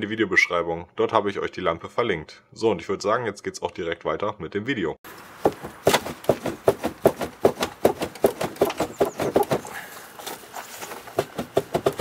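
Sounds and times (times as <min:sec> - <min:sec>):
plastic bumper knocking and rattling: 0:05.3 - 0:09.8, 0:10.8 - 0:12.0.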